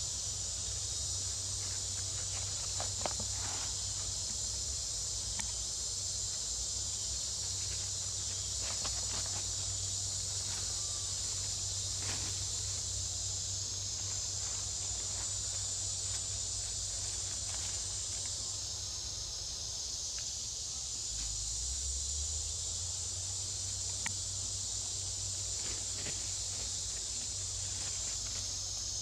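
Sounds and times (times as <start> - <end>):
insect chorus drone: 0.0 - 29.0
dry leaves rustling: 7.5 - 18.5.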